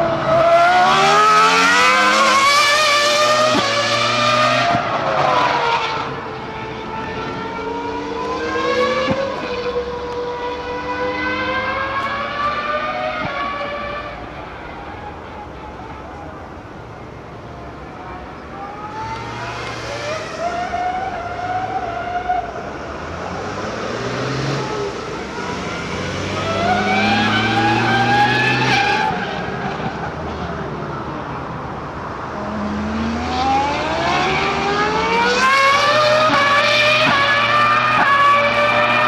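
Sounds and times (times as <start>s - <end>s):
racing car engine revving: 0.0s - 15.7s, 18.6s - 29.9s, 32.4s - 39.0s.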